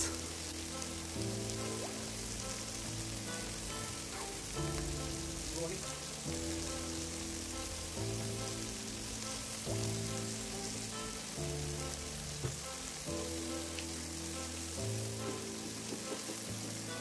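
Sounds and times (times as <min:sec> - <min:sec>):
background music chords: 0:00.0 - 0:17.0
vegetables sizzling in a frying pan: 0:00.0 - 0:17.0.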